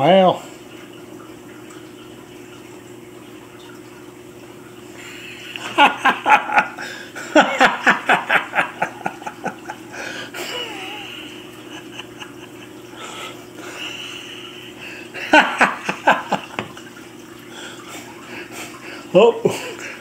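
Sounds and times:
steady low hum: 0.0s - 20.0s
person laughing: 5.0s - 13.0s, 13.6s - 16.7s, 19.3s - 20.0s.

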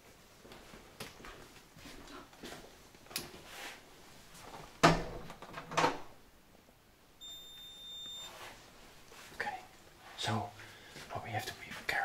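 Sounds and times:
high electronic beep: 7.2s - 8.3s.

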